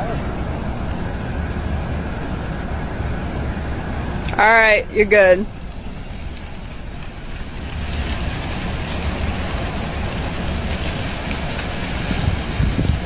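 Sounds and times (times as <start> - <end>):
gusting wind on microphone: 0.0 - 13.0
dry leaves scraping over asphalt: 5.5 - 13.0.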